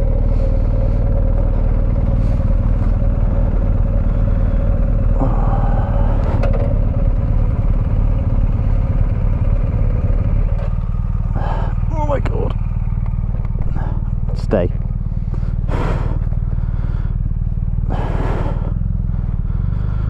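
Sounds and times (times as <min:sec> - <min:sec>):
motorcycle engine idling: 0:00.0 - 0:20.0.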